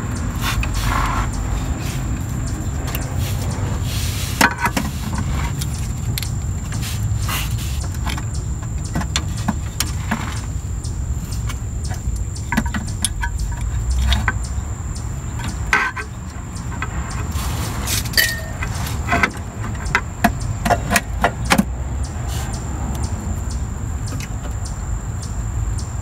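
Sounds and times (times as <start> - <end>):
metal clinks and knocks: 15.3 - 21.7.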